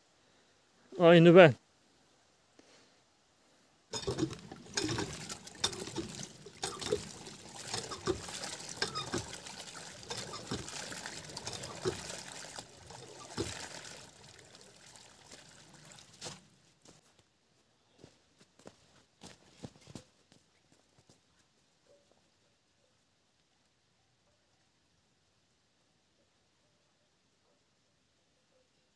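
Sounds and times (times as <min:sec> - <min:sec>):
water pouring into plastic buckets: 0:03.9 - 0:16.5.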